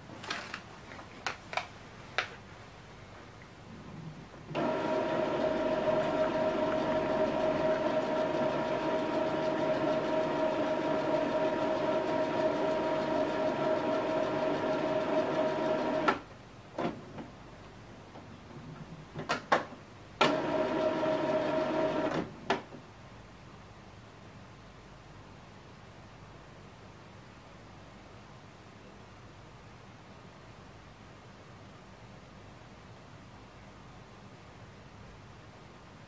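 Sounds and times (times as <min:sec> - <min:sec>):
printer motor humming with whine: 0:04.6 - 0:16.2, 0:20.2 - 0:22.2.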